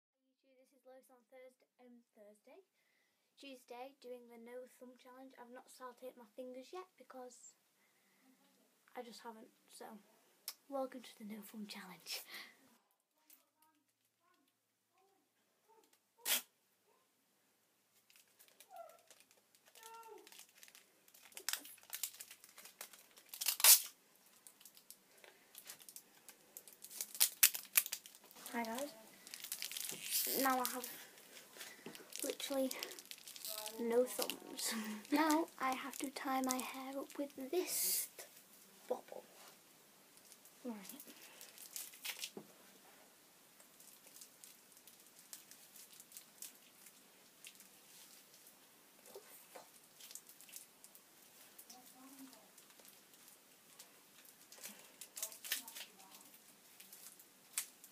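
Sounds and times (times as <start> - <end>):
sticky tape ripping: 16.2 - 16.5, 18.2 - 24.8, 26.8 - 34.5, 41.6 - 42.4, 54.6 - 56.2
tape crinkling: 17.9 - 38.4, 40.2 - 42.4, 43.6 - 57.9
hands rustling hair: 26.8 - 36.7.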